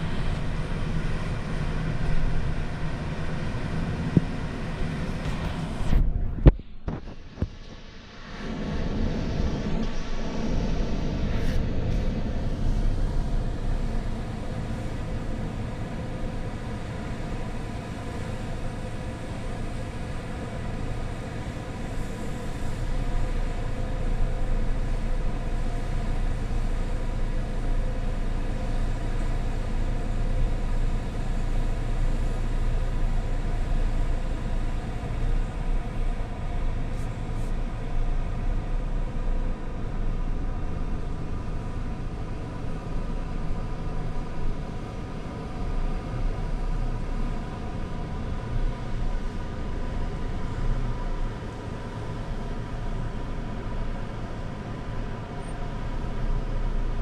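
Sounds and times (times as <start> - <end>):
car cabin rumble: 0.0 - 8.7
constant droning hum: 0.0 - 57.0.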